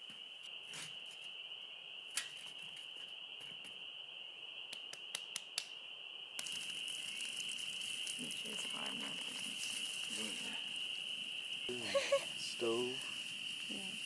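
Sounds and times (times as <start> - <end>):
spring peepers chorus: 5.8 - 14.0.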